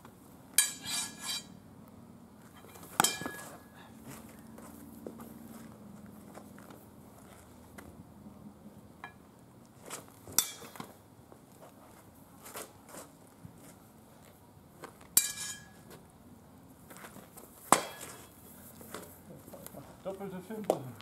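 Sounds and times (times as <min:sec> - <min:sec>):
steel swords clashing: 0:00.6 - 0:01.6, 0:03.0 - 0:03.7, 0:10.4 - 0:10.8, 0:15.2 - 0:15.8.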